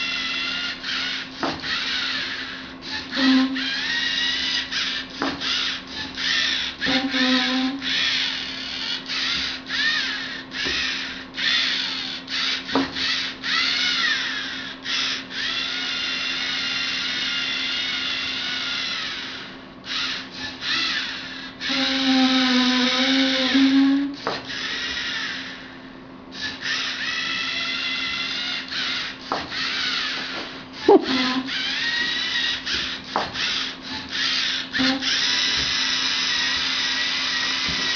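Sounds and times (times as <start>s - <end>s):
servo motors whining: 0.0s - 37.9s.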